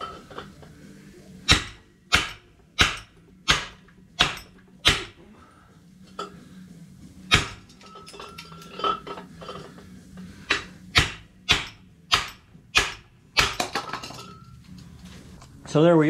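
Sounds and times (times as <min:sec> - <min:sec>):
hammer striking metal punch: 0:01.4 - 0:05.2, 0:07.3 - 0:07.9, 0:10.5 - 0:14.2
clatter of metal knocks: 0:10.5 - 0:14.6.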